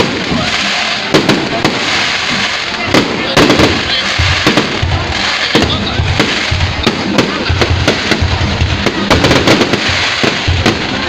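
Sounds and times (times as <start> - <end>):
firework crackle: 0.0 - 11.0
deep booms: 2.8 - 11.0.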